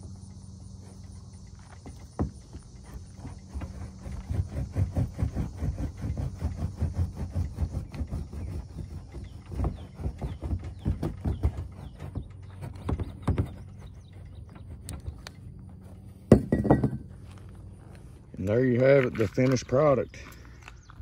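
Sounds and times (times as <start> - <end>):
steel pipe knocking and scraping: 1.4 - 17.3.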